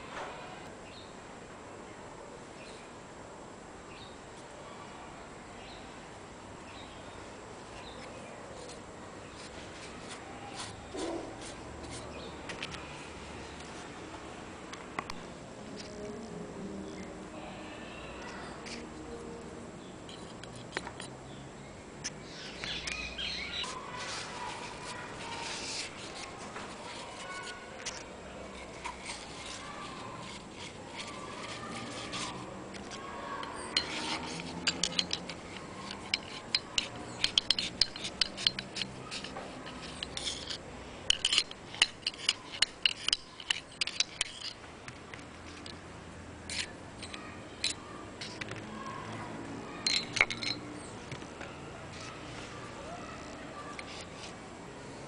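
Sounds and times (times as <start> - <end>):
small metallic clicks and scraping: 7.8 - 13.7, 18.2 - 18.8, 20.1 - 21.2, 22.0 - 52.2, 53.2 - 54.4.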